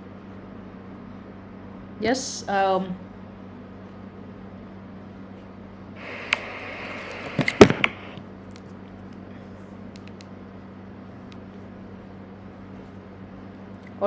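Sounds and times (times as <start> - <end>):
steady low hum: 0.0 - 14.0
sharp clicks and knocks: 7.2 - 8.0.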